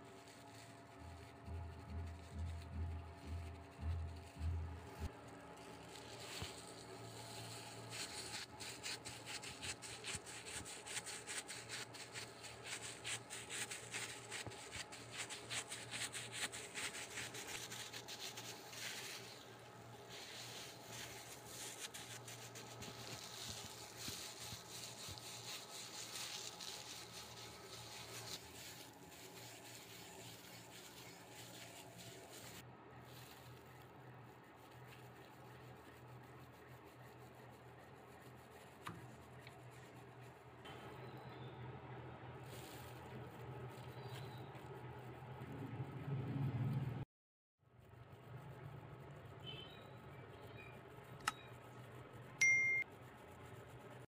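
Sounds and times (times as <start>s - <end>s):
dough rolled with rolling pin: 0.0s - 41.1s.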